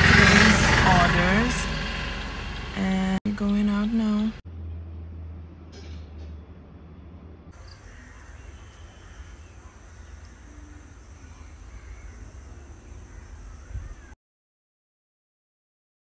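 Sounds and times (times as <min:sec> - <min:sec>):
low hum: 0:00.0 - 0:14.2
bird calls: 0:07.6 - 0:14.2
high insect drone: 0:07.6 - 0:14.2.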